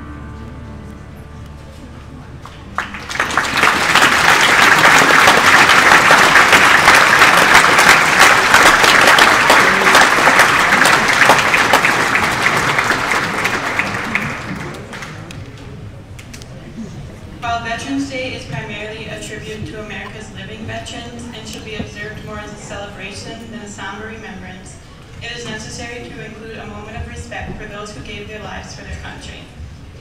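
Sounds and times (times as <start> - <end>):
crowd applauding: 2.2 - 15.4.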